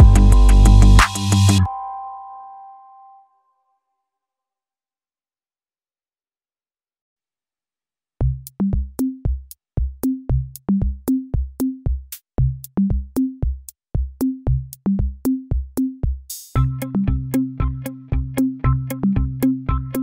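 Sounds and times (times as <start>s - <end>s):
electronic music with drum-machine beat: 0.0s - 1.7s, 8.2s - 20.0s.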